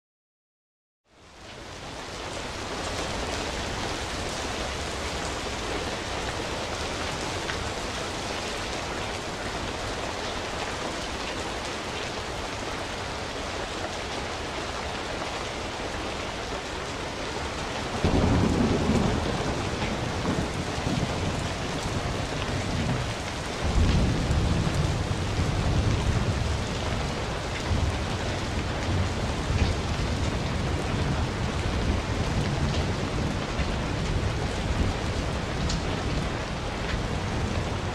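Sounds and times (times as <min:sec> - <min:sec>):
steady rain hiss: 0:01.1 - 0:37.9
low thunder rumbles: 0:17.4 - 0:37.9.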